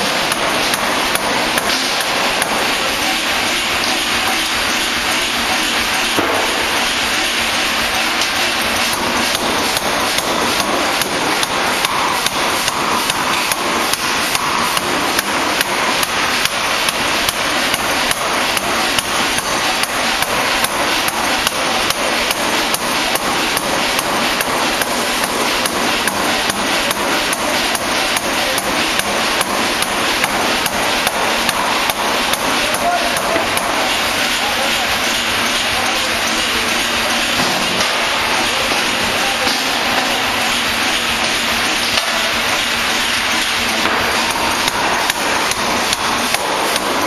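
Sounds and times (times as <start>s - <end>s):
forging hammer striking steel: 0.0s - 47.0s.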